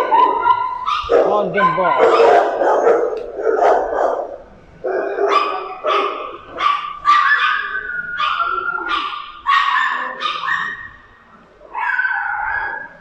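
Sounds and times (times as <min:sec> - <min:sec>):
dogs barking: 0:00.0 - 0:13.0
dog whining: 0:04.9 - 0:11.0, 0:11.6 - 0:13.0.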